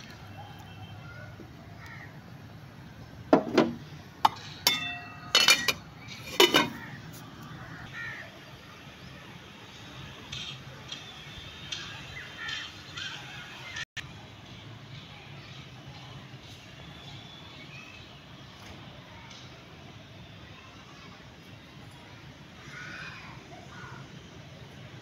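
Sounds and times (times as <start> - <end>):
spoon and lid clanking on pot: 3.4 - 6.8.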